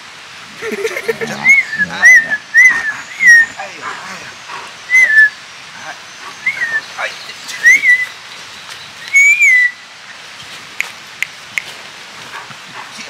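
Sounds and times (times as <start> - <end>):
dog whining: 1.2 - 4.0.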